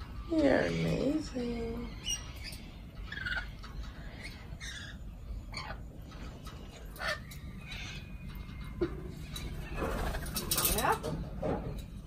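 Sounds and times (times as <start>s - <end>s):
parrots calling: 0.0s - 11.4s.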